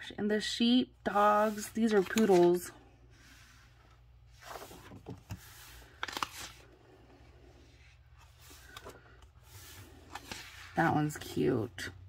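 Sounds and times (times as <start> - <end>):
paper pages turning: 1.2 - 2.6, 4.3 - 11.4.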